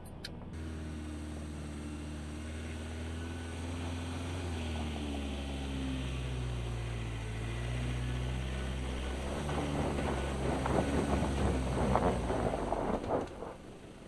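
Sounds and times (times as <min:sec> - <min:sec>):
diesel engine running at low revs: 0:00.0 - 0:14.0.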